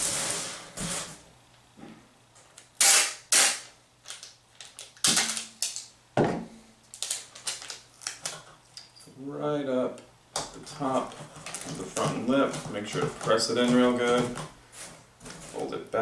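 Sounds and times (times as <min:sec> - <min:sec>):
packing tape ripping: 0:02.6 - 0:05.9, 0:06.9 - 0:08.4, 0:11.1 - 0:14.4.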